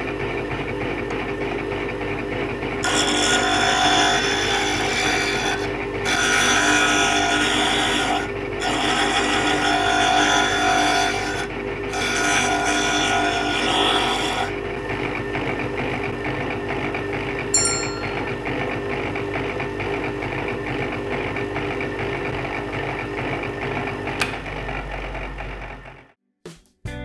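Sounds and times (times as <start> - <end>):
bench grinder motor humming: 0.0 - 26.1
chisel rasping on grinding wheel: 2.8 - 15.9.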